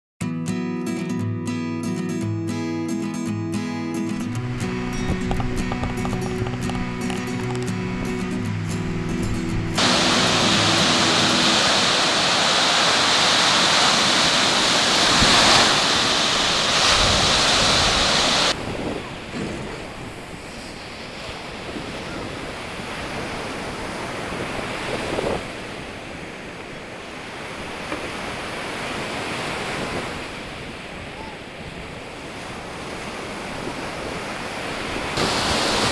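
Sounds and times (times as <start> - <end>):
surf breaking on beach: 4.2 - 35.9
wind buffeting microphone: 4.3 - 10.0, 14.0 - 26.4.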